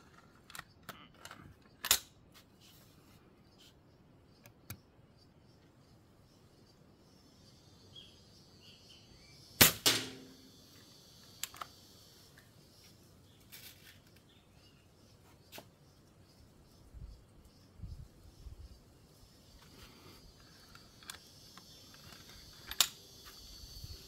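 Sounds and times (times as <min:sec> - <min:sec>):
air rifle shot: 0:09.6 - 0:10.5.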